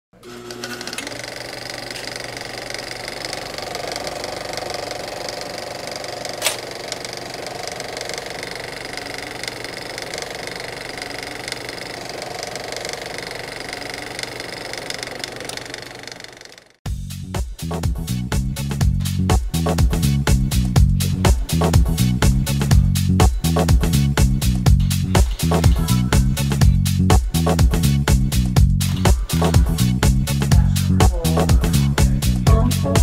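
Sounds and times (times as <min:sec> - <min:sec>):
film projector running: 0:00.2 - 0:16.8
sharp click: 0:06.4 - 0:07.0.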